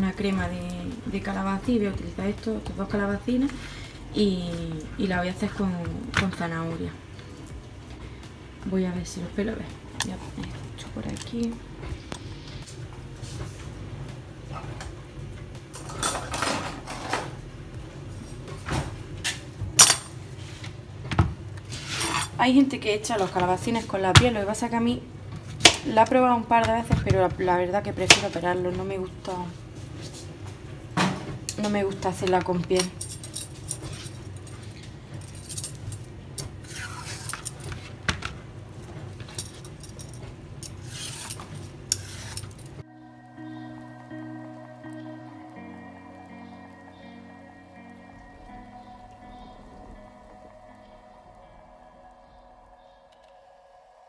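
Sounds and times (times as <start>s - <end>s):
peeler scraping vegetable skin: 40.8s - 42.6s.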